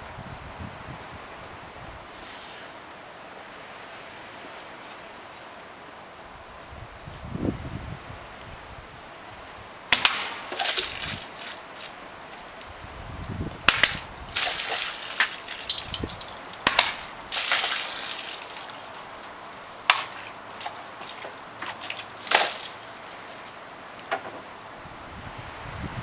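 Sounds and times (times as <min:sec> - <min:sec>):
blades cracking through plastic jugs: 0:13.6 - 0:24.5
water gushing and splashing: 0:14.3 - 0:23.6.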